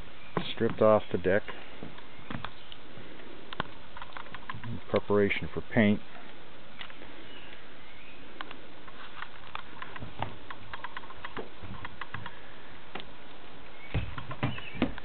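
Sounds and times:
steady background hiss: 0:00.0 - 0:15.0
soft thumps of footsteps: 0:13.9 - 0:15.0.

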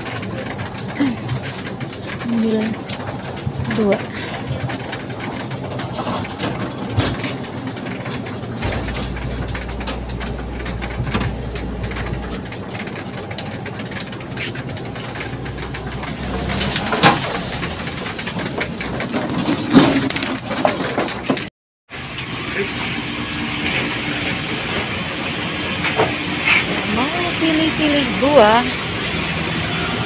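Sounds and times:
engine-like rumble: 0:00.0 - 0:21.4.

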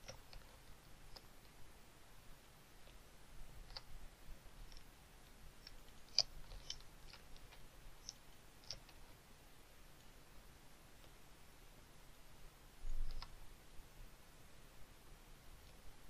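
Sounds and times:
computer mouse clicks: 0:00.0 - 0:00.5, 0:03.6 - 0:03.9, 0:05.6 - 0:09.0, 0:12.9 - 0:13.4.

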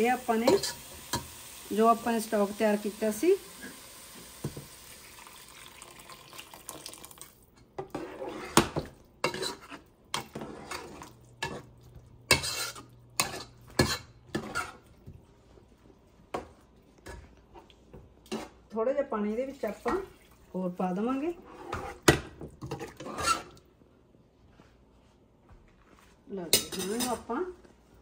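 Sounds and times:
liquid poured into hot pot hissing: 0:03.4 - 0:07.4
metal spoon scraping pot: 0:07.8 - 0:14.9, 0:21.3 - 0:23.6.

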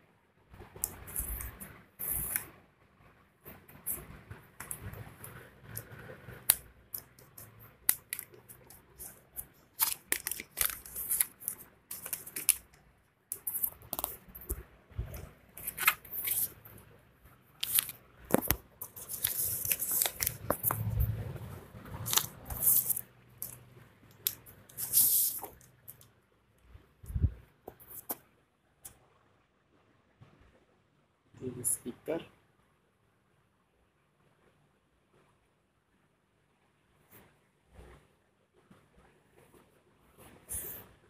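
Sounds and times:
plastic packaging crinkling: 0:06.5 - 0:16.6, 0:17.6 - 0:20.8, 0:22.0 - 0:23.6.

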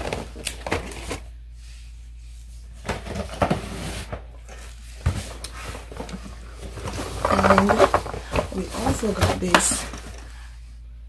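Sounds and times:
low steady hum: 0:00.0 - 0:11.0
cardboard boxes knocking and rustling: 0:02.8 - 0:10.2.

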